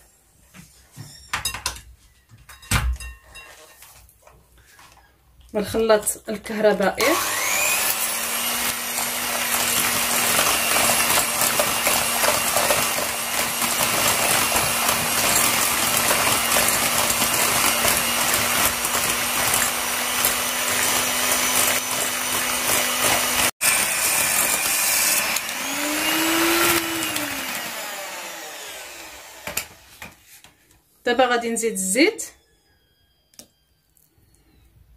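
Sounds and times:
electric hand mixer whisking: 0:06.5 - 0:30.2.

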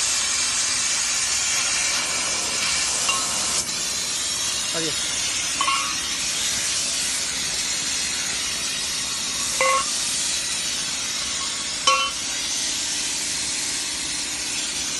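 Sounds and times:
steady loud hiss: 0:00.0 - 0:14.9
metal pieces clinking on concrete: 0:05.5 - 0:06.1, 0:09.5 - 0:10.0, 0:11.4 - 0:12.3.

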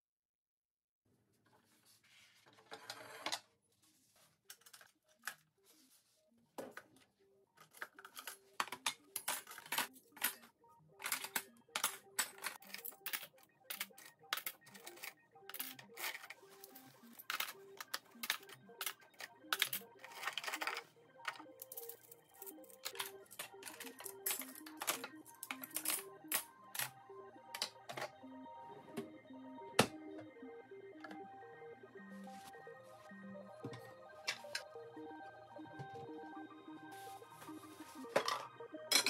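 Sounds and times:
soft background music: 0:01.4 - 0:39.0
metal cutlery clinking: 0:07.7 - 0:16.3, 0:38.2 - 0:39.0.

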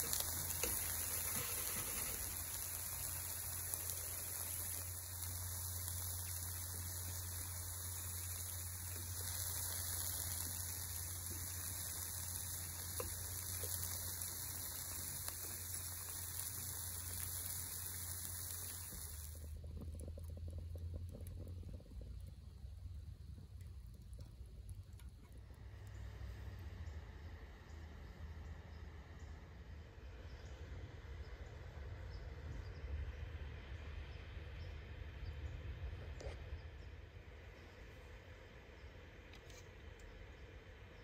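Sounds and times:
food sizzling on a griddle: 0:00.0 - 0:21.8
low hum: 0:00.0 - 0:41.0.

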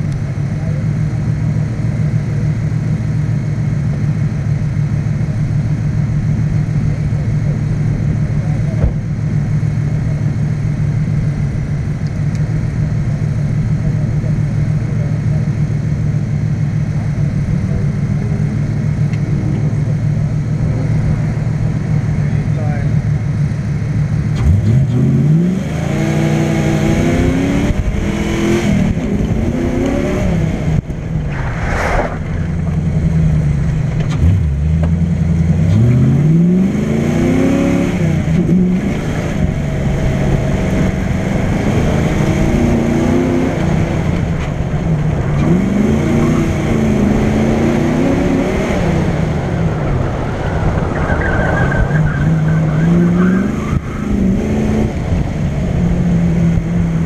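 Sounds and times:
car engine revving: 0:00.0 - 0:57.0
wind noise: 0:26.7 - 0:34.3, 0:38.1 - 0:57.0.

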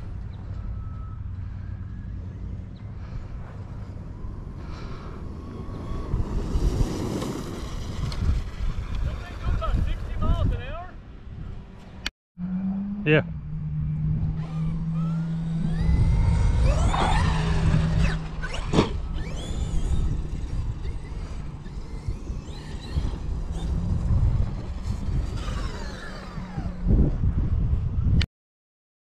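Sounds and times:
electric motor whining: 0:13.6 - 0:27.2.

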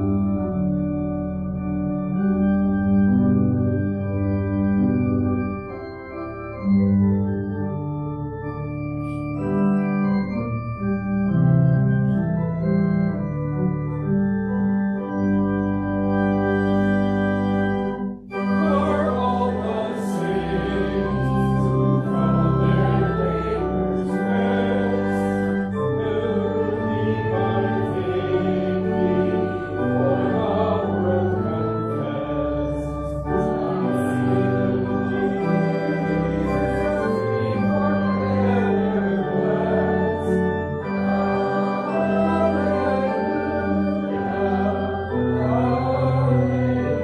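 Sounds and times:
pipe organ: 0:00.0 - 0:47.0
congregation singing a hymn: 0:16.5 - 0:47.0.

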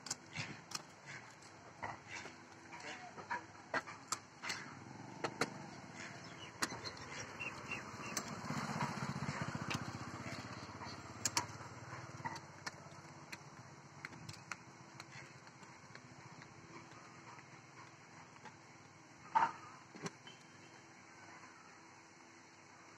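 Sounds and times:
vehicle engine passing: 0:04.7 - 0:12.5
egrets calling: 0:05.6 - 0:11.0.

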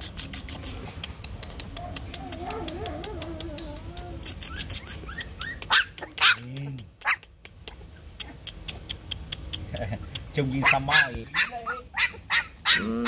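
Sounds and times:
puppy whining and yelping: 0:00.1 - 0:06.2, 0:10.6 - 0:13.0.

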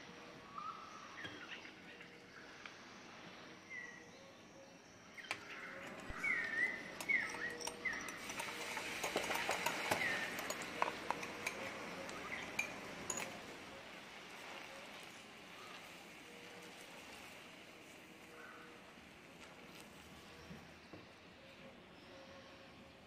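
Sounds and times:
caramel sizzling and bubbling in pan: 0:06.1 - 0:20.6.

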